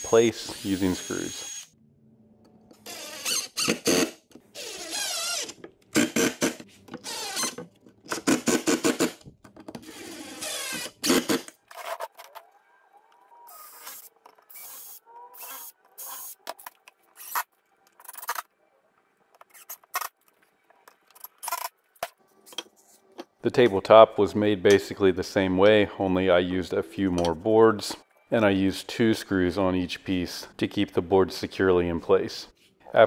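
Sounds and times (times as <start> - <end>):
cordless drill whining: 10.0 - 11.3.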